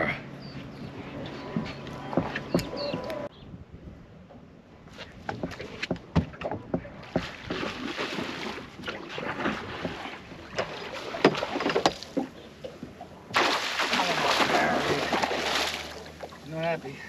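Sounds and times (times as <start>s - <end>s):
sharp knocks and clicks on boat: 0.8s - 3.3s, 4.3s - 13.5s
water splashing: 5.4s - 16.9s.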